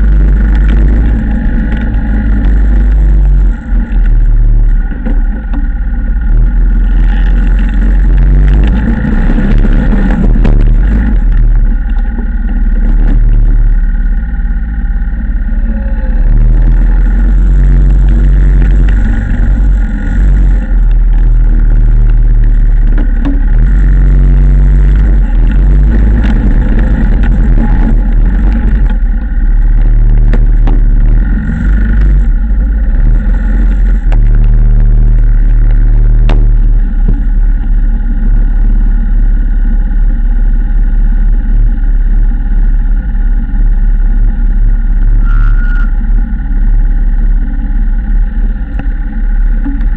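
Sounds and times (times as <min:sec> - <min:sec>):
atv engine rumbling: 0:00.0 - 0:49.9
plow blade pushing snow: 0:00.0 - 0:49.9.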